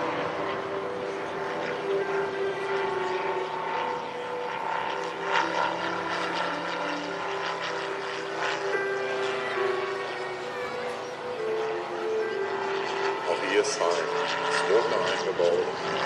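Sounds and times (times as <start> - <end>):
model plane engine droning: 0.0 - 16.0.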